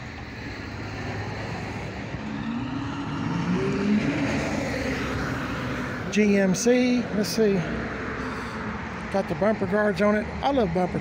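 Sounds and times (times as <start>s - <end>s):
vehicle driving by: 0.0s - 9.5s.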